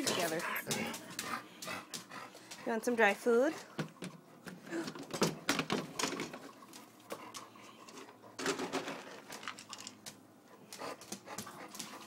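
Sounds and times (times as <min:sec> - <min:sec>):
dry dog food clattering: 0:07.8 - 0:10.2.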